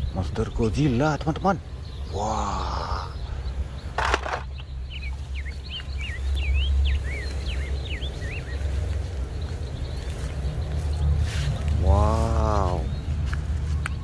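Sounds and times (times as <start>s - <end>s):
bird chirping: 0.0s - 14.0s
steady low rumble: 1.6s - 14.0s
plastic toy clattering in basket: 4.0s - 4.5s.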